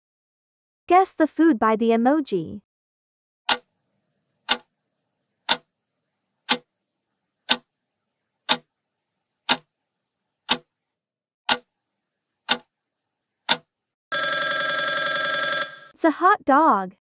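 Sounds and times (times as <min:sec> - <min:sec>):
clock ticking: 0:03.5 - 0:03.7, 0:04.5 - 0:04.7, 0:05.5 - 0:05.7, 0:06.5 - 0:06.7, 0:07.5 - 0:07.7, 0:08.5 - 0:08.7, 0:09.5 - 0:09.7, 0:10.5 - 0:10.7, 0:11.5 - 0:11.7, 0:12.5 - 0:12.7, 0:13.5 - 0:13.7.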